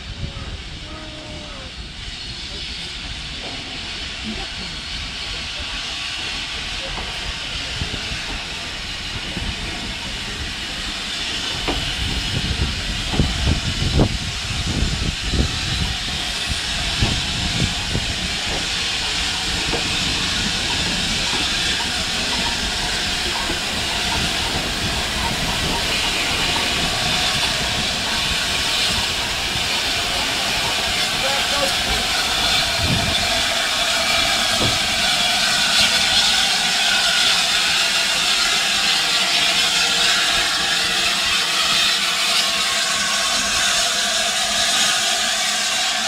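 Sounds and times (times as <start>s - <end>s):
steam locomotive hissing: 0.0s - 46.0s
train wheels knocking and clanking: 6.8s - 42.6s.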